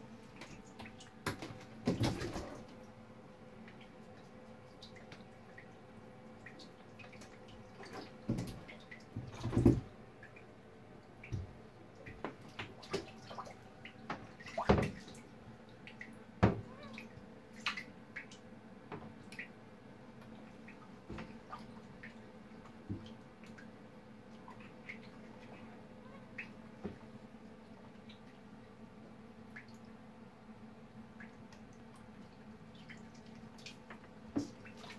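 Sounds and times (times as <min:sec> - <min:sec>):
water drips: 0:03.6 - 0:25.7, 0:29.5 - 0:30.0, 0:31.0 - 0:34.9.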